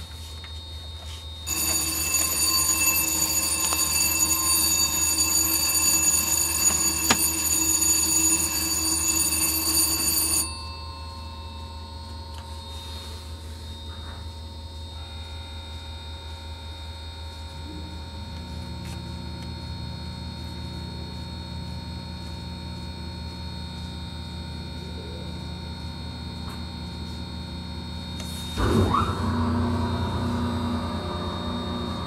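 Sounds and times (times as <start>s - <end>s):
high-pitched warning tone: 0.0s - 19.1s
low electrical hum: 0.0s - 32.0s.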